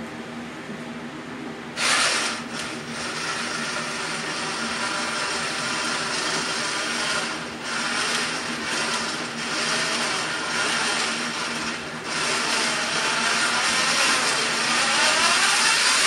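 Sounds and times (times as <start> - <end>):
winch motor whirring: 1.8 - 16.0.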